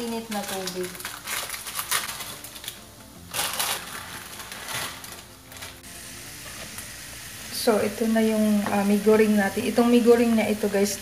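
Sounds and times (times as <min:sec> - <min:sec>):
plastic packet crinkling: 0:00.0 - 0:05.8.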